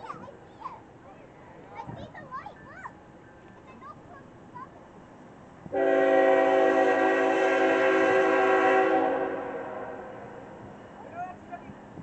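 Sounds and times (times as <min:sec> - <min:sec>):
locomotive air horn blast: 0:05.7 - 0:10.5.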